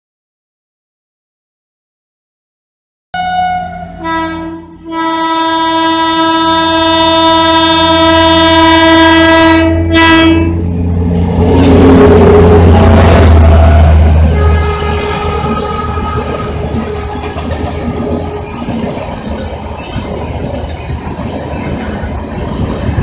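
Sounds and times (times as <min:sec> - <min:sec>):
locomotive air horn blasts: 0:03.2 - 0:10.8, 0:11.4 - 0:19.0
train rumbling past: 0:03.2 - 0:23.0.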